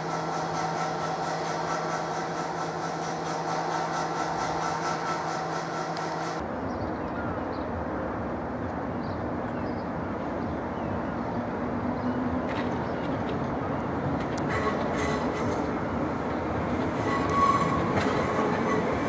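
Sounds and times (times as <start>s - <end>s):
train rumbling over points: 0.0s - 6.7s, 8.4s - 19.0s.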